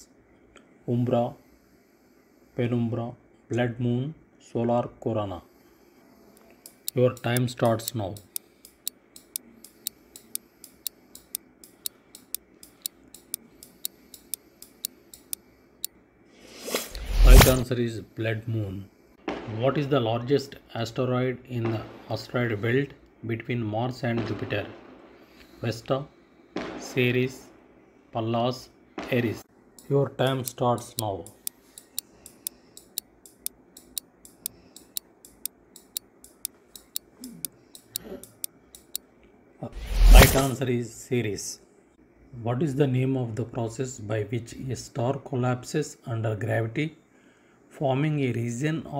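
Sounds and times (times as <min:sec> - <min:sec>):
clock ticking: 0:06.6 - 0:15.4, 0:29.8 - 0:39.0.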